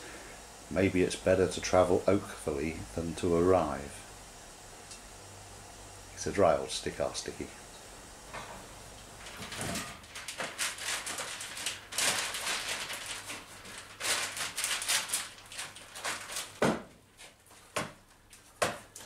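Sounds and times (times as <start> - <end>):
plastic bag crinkling: 9.1 - 19.0.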